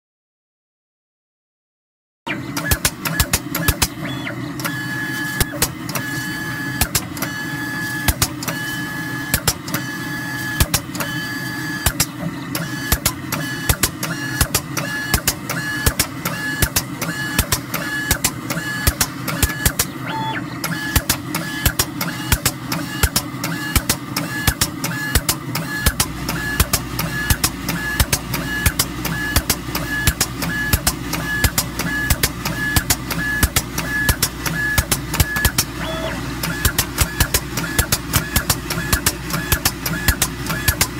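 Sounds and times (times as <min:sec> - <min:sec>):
mechanical whir with clicks: 0:02.3 - 0:40.9
pulsing pitched tone: 0:35.4 - 0:36.2.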